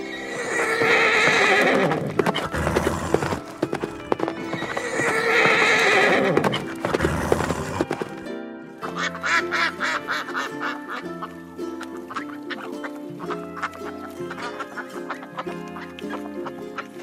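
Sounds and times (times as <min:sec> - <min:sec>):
horse whinnying: 0:00.0 - 0:08.2
background music: 0:00.0 - 0:17.0
duck quacking: 0:08.8 - 0:17.0.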